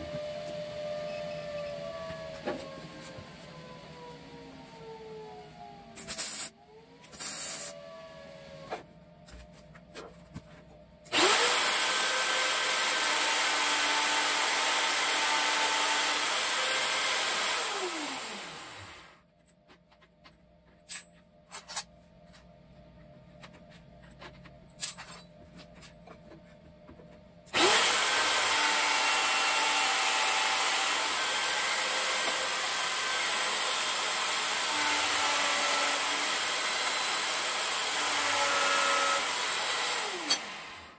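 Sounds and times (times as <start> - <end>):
drill press motor running: 11.1 - 19.2, 27.5 - 40.9.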